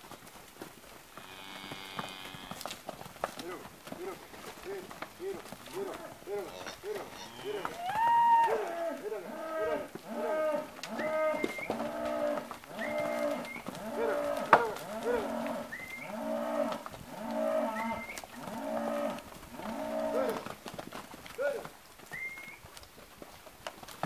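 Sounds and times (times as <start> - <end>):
cattle mooing: 3.5 - 7.8, 8.4 - 20.4.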